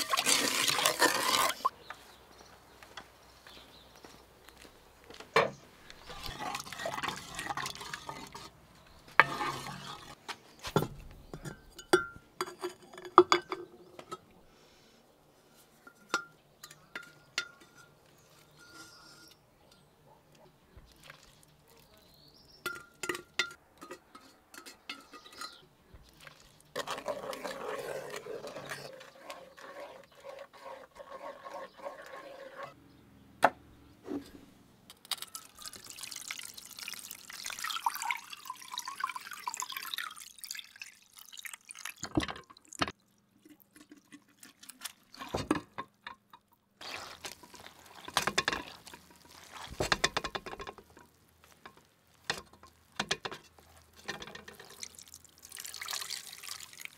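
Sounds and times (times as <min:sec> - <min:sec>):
liquid pouring and splashing: 0:00.0 - 0:01.7, 0:20.9 - 0:21.9, 0:35.2 - 0:46.1, 0:46.8 - 0:56.9
wooden spoon stirring in pot: 0:00.0 - 0:01.7, 0:05.8 - 0:13.7, 0:20.8 - 0:32.8, 0:46.8 - 0:56.9.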